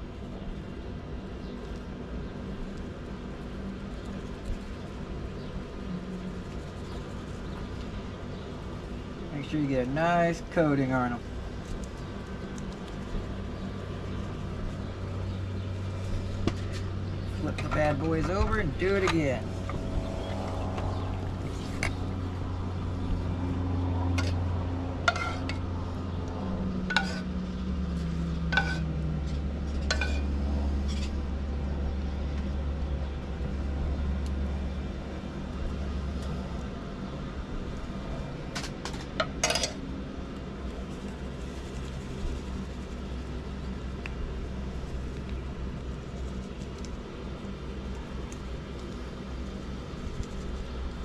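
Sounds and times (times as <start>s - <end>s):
low steady rumble: 0.0s - 51.0s
passing engine drone: 15.0s - 38.5s.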